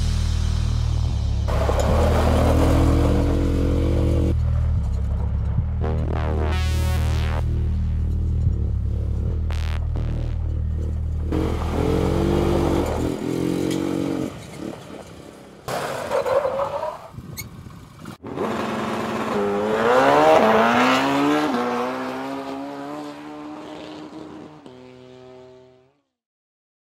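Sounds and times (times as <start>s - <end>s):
quad bike engine revving: 1.5s - 4.6s, 11.2s - 16.2s, 18.1s - 25.5s.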